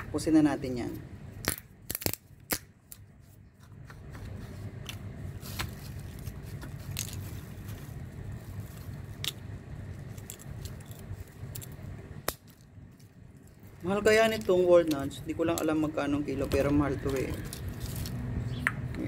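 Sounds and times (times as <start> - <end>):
air conditioner hum: 0.0 - 19.0
walnut shells cracking: 1.4 - 3.1, 4.8 - 7.6, 8.9 - 18.8.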